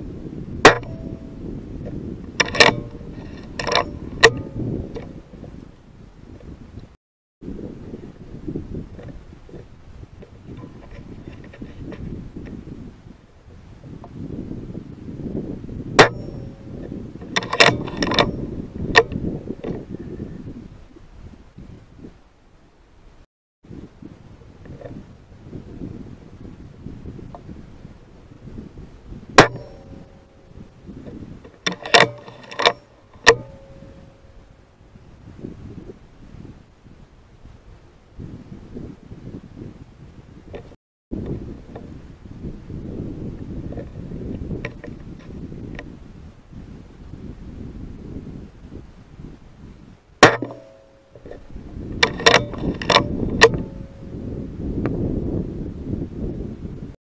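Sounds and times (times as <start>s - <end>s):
wind rumble on microphone: 0.0s - 57.0s
metallic clicks of rifle lever: 31.7s - 33.4s.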